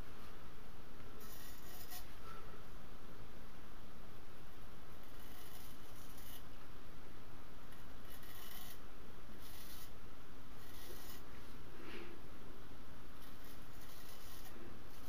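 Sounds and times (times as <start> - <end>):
razor scraping stubble: 1.2 - 2.1, 5.0 - 6.5, 7.8 - 8.8, 9.4 - 10.0, 10.6 - 11.4, 13.2 - 15.0.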